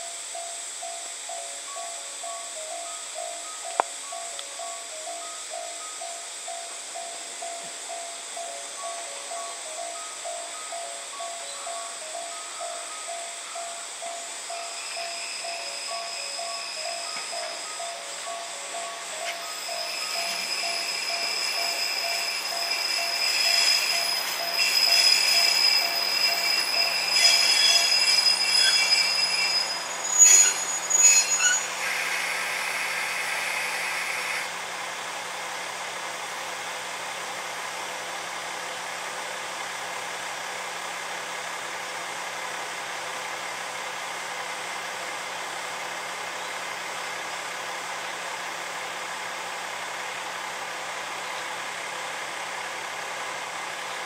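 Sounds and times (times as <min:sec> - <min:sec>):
train wheel and brake squeal: 0:00.0 - 0:34.6.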